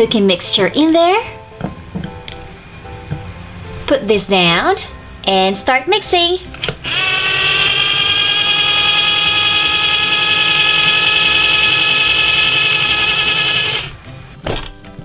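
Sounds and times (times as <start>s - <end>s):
toy mixer motor whirring: 6.8s - 14.0s.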